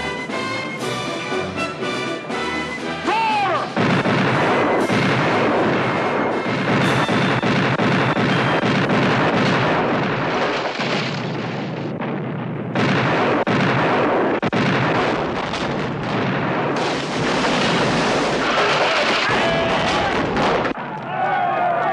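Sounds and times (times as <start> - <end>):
cannon firing: 3.7 - 20.9.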